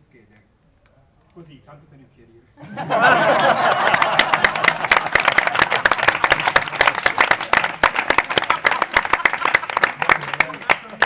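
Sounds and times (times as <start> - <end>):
crowd cheering: 2.6 - 11.0
audience applauding: 2.9 - 11.0.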